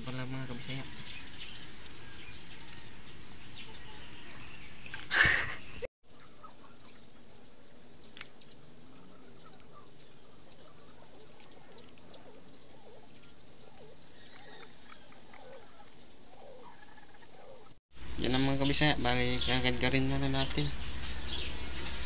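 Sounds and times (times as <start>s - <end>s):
water dripping: 6.0s - 17.8s.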